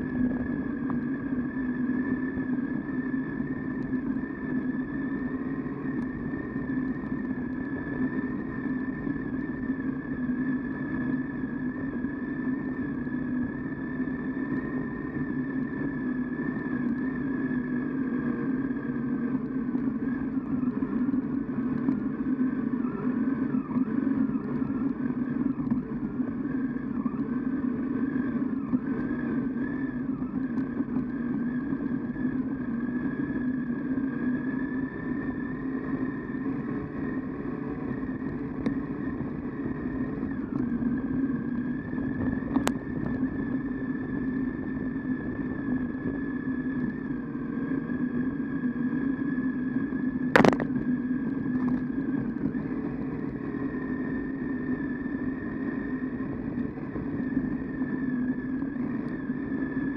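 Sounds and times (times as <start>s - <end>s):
motorcycle engine running: 50.2s - 53.8s.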